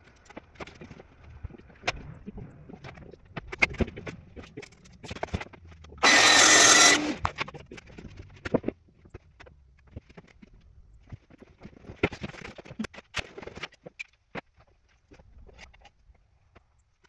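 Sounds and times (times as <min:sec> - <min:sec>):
saw cutting plywood: 0:06.0 - 0:07.3.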